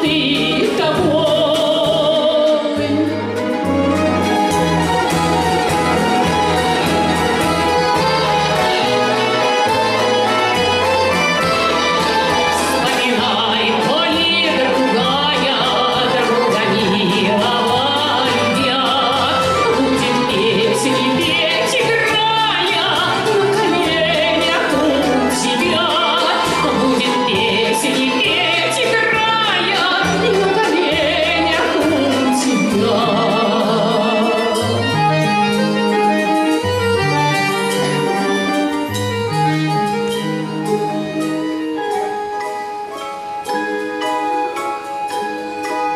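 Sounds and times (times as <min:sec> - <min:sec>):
woman singing with vibrato: 0:00.0 - 0:03.5, 0:12.4 - 0:35.0
folk string orchestra: 0:00.0 - 0:45.9.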